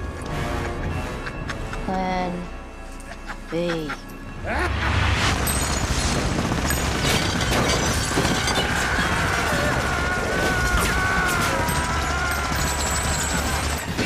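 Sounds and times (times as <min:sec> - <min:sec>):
action film music: 0:00.0 - 0:14.0
crashes and bangs: 0:04.7 - 0:14.0.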